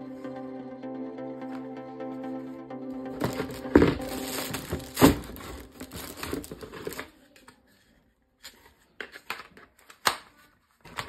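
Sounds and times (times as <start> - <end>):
plastic packaging crinkling and tearing: 3.2 - 7.4.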